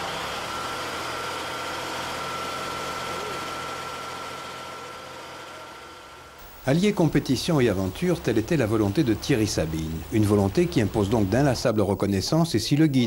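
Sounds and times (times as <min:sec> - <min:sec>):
engine running with a whine: 0:00.0 - 0:06.5.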